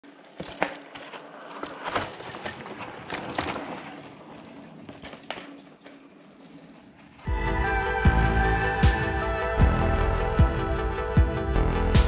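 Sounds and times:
bike knocking and rattling: 0:00.0 - 0:07.3
bike tyres crunching on dirt: 0:00.0 - 0:07.3.

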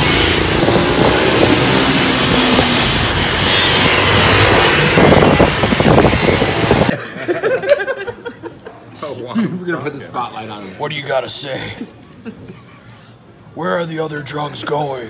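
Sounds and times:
minibike engines running: 0:00.0 - 0:06.9
wind buffeting microphone: 0:00.0 - 0:06.9.

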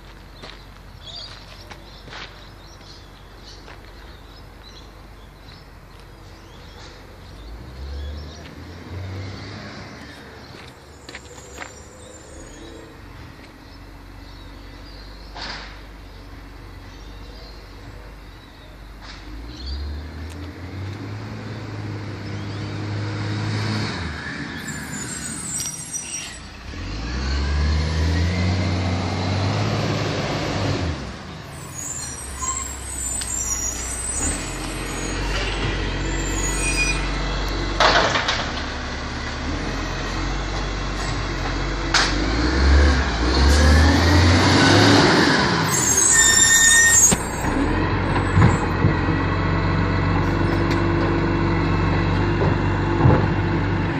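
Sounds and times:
garbage truck engine revving: 0:19.4 - 0:53.9
air brake hisses and squeals: 0:24.2 - 0:26.6, 0:31.5 - 0:37.2, 0:45.6 - 0:47.6.

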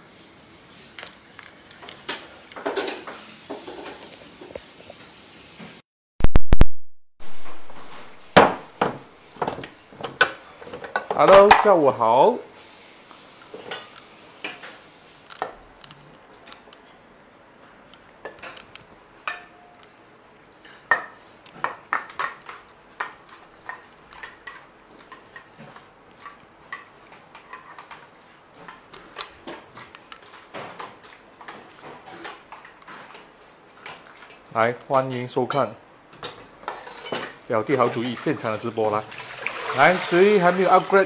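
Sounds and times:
dishes and utensils clinking: 0:35.5 - 0:38.3.

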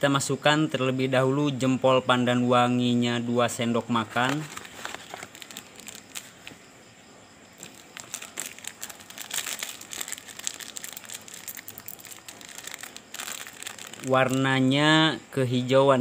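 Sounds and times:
plastic packet crinkling: 0:04.1 - 0:06.6, 0:07.6 - 0:14.6.

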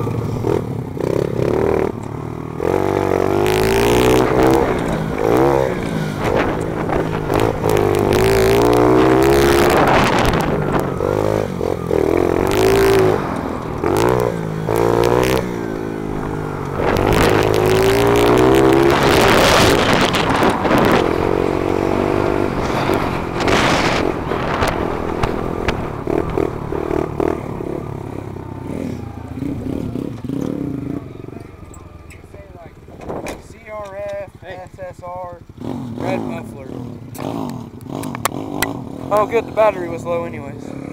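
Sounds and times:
pit bike engine revving: 0:00.0 - 0:40.9
wind noise on microphone: 0:02.7 - 0:27.6, 0:32.8 - 0:33.8.

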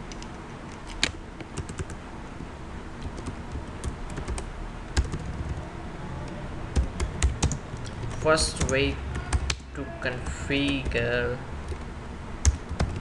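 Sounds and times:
keyboard keys clicking: 0:00.1 - 0:02.0, 0:03.0 - 0:05.6, 0:06.7 - 0:09.6, 0:11.7 - 0:13.0.

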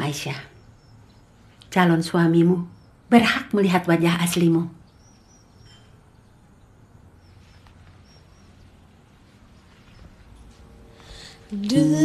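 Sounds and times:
faint high chirps: 0:04.8 - 0:12.0
music: 0:10.2 - 0:12.0.

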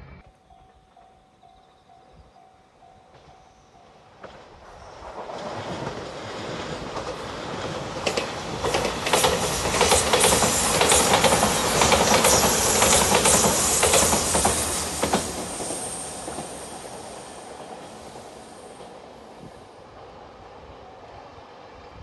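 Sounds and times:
train passing by: 0:00.0 - 0:22.0
wheels clacking over rail joints: 0:04.2 - 0:19.0.

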